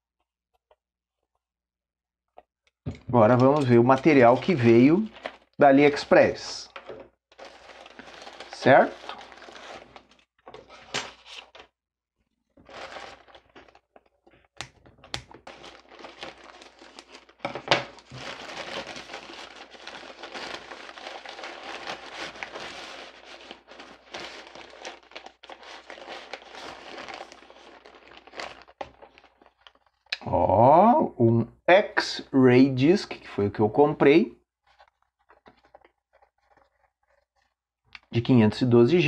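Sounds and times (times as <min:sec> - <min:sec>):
plastic mailer bag crinkling: 0:04.1 - 0:06.7, 0:07.3 - 0:11.7, 0:12.6 - 0:14.3, 0:15.3 - 0:30.1, 0:34.7 - 0:37.6.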